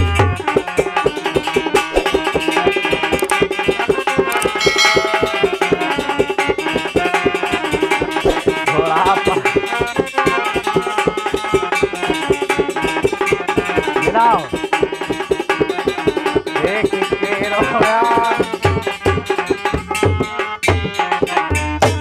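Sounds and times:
harmonium chords: 0:00.0 - 0:21.5
hand drum strokes: 0:00.0 - 0:22.0.

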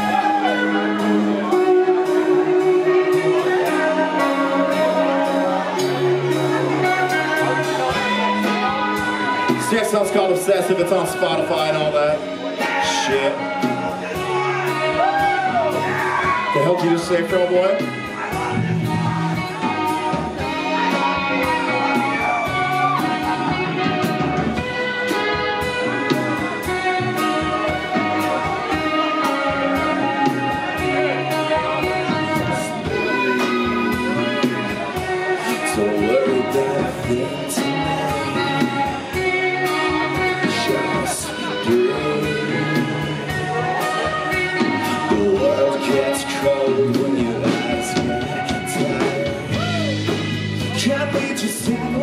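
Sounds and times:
man singing: 0:00.0 - 0:24.0, 0:27.4 - 0:52.0
bass guitar: 0:00.0 - 0:52.0
drum kit beats: 0:00.0 - 0:52.0
electric guitar: 0:00.0 - 0:52.0.

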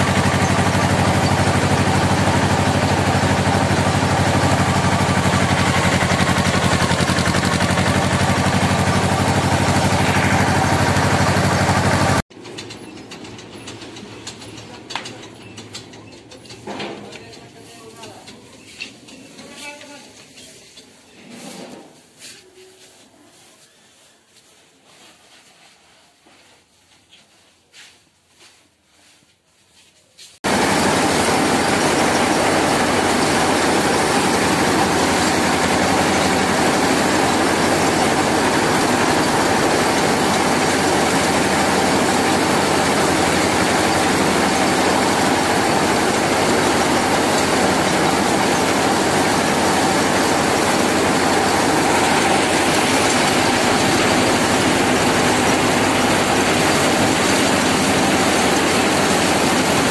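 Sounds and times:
tractor engine humming: 0:00.0 - 0:20.3, 0:30.4 - 0:59.9.

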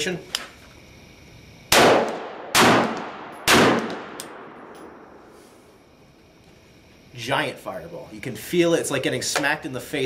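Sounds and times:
rifle shots echoing: 0:01.7 - 0:05.1.

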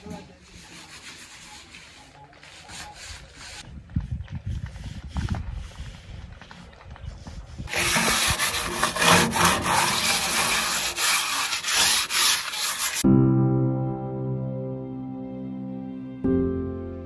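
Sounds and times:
scouring pad scrubbing steel: 0:00.0 - 0:03.6, 0:07.7 - 0:13.0
soft music: 0:13.0 - 0:17.0.

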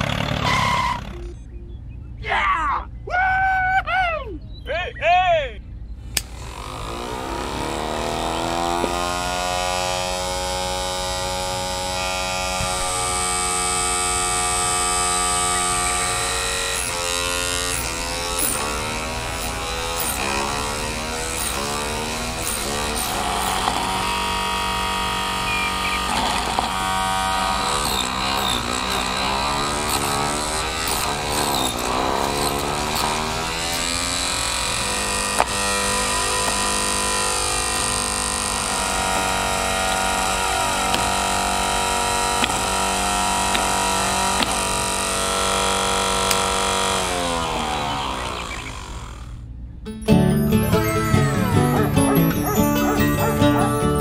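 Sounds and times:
small electric saw motor whining: 0:00.0 - 0:01.4, 0:06.0 - 0:49.6, 0:50.4 - 0:54.0
motor switch click: 0:06.1 - 0:06.4
saw blade cutting twigs: 0:06.1 - 0:49.1.

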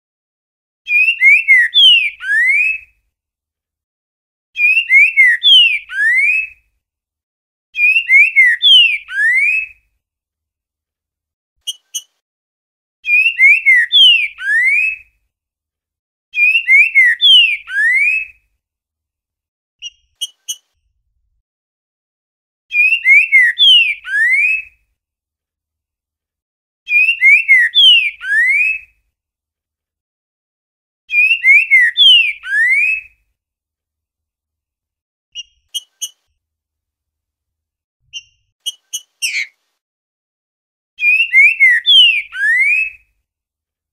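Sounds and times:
bird singing whistled phrases: 0:00.9 - 0:02.9, 0:04.6 - 0:06.6, 0:07.8 - 0:09.8, 0:13.0 - 0:15.0, 0:16.4 - 0:18.4, 0:22.7 - 0:24.7, 0:26.9 - 0:28.9, 0:31.1 - 0:33.2, 0:41.0 - 0:43.0
short high bird chips: 0:38.1 - 0:39.6.

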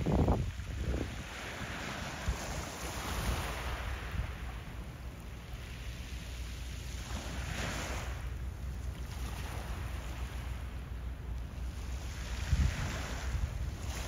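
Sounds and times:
wind blowing across microphone: 0:00.0 - 0:05.1, 0:11.6 - 0:14.0.

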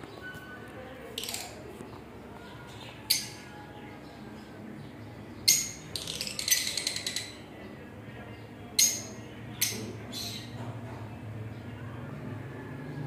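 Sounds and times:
lovebirds chirping: 0:00.0 - 0:07.6, 0:08.4 - 0:10.6.

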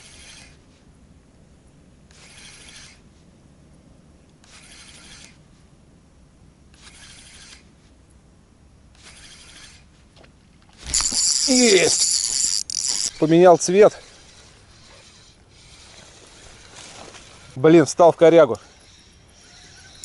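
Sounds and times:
fishing reel cranking: 0:00.0 - 0:00.6, 0:02.1 - 0:03.0, 0:04.4 - 0:05.4, 0:06.8 - 0:07.7, 0:09.0 - 0:09.9, 0:10.8 - 0:17.5, 0:18.8 - 0:20.0.

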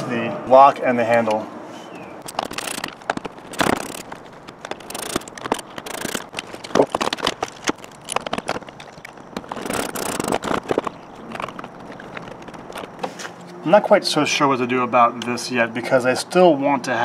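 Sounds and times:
screwdriver working: 0:02.2 - 0:13.1.

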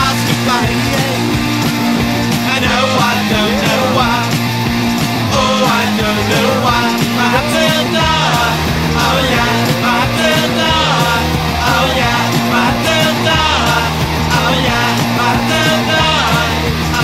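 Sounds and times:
rock song with singing: 0:00.0 - 0:17.0
steady bass line: 0:00.0 - 0:17.0.

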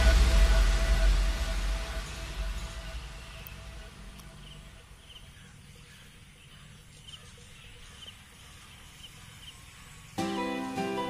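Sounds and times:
low steady rumble: 0:00.0 - 0:05.4
bird chirps: 0:02.4 - 0:11.0.

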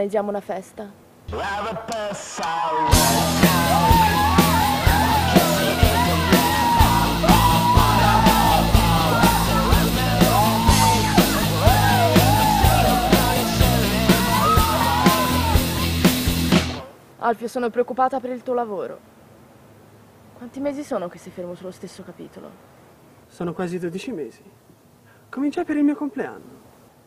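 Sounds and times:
person shouting vocals: 0:01.3 - 0:16.0
drums beating: 0:01.3 - 0:16.9
rock band playing: 0:02.9 - 0:16.8.

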